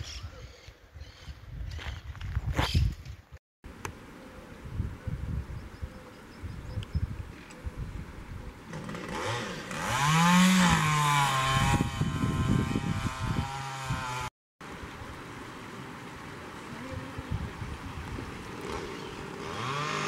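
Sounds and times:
small motor engine revving: 0:08.7 - 0:14.3, 0:18.5 - 0:20.0.

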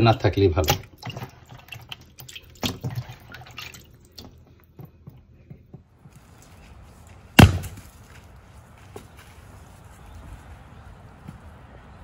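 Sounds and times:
sledgehammer striking log: 0:07.4 - 0:07.8.

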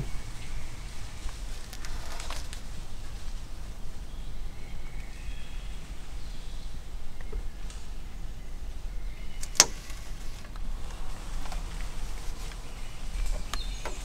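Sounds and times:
rustling in undergrowth: 0:00.0 - 0:14.0
sharp clicks: 0:09.4 - 0:10.7.

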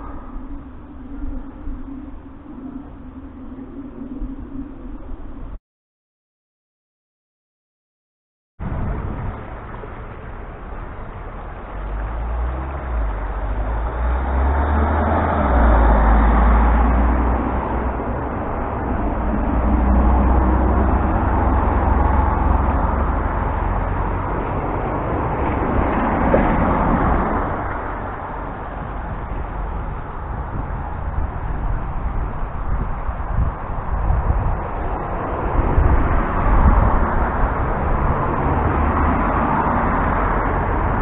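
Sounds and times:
low traffic rumble: 0:00.0 - 0:05.6, 0:08.6 - 0:41.0
vehicles passing: 0:08.6 - 0:41.0.

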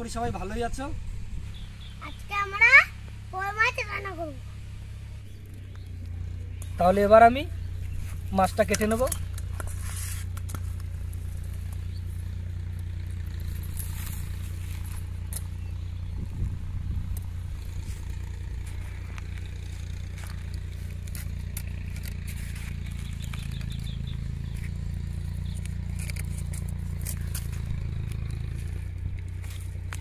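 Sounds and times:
steady low rumble: 0:00.0 - 0:30.0
blade scraping fish: 0:09.5 - 0:10.7.

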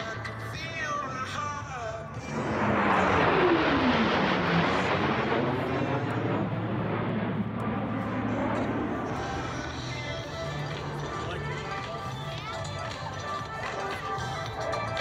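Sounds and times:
jet flying past: 0:02.1 - 0:12.9.

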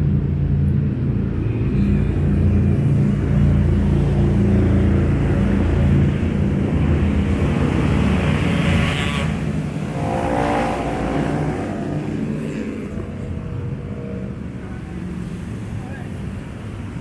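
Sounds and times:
traffic passing: 0:00.0 - 0:17.0
higher engine whine: 0:09.2 - 0:15.3.

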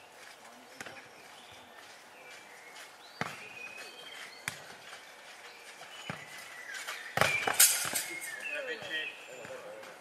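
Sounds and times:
faint bird chirps: 0:00.9 - 0:09.9
ball kicked and bouncing: 0:03.2 - 0:03.6, 0:04.4 - 0:04.9, 0:06.0 - 0:06.4, 0:07.1 - 0:08.2.

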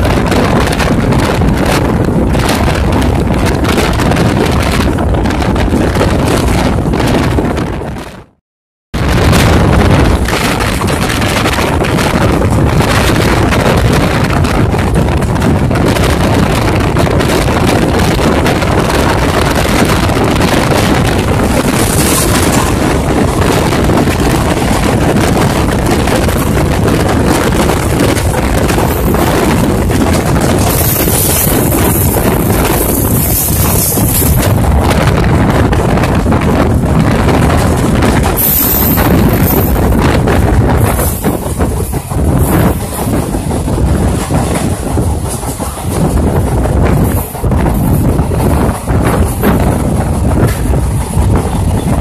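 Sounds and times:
train running noise: 0:00.0 - 0:08.4, 0:09.0 - 0:52.0
wind buffeting microphone: 0:00.0 - 0:52.0
train passing close: 0:09.0 - 0:52.0.

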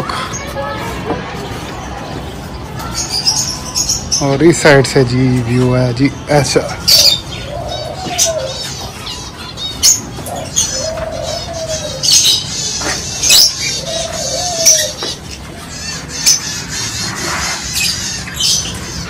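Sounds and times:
dove cooing: 0:06.8 - 0:09.1, 0:09.8 - 0:17.8.

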